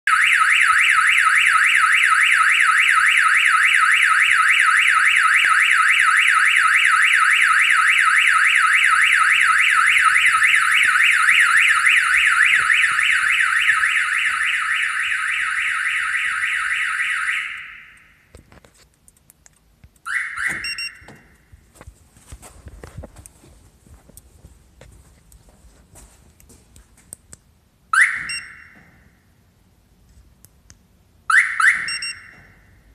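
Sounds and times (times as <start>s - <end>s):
car alarm siren warbling: 0.1s - 18.2s, 20.1s - 21.4s, 28.0s - 28.8s, 31.3s - 32.6s
car alarm chirp: 0.1s - 18.3s, 20.1s - 21.5s, 27.9s - 29.2s, 31.3s - 32.9s.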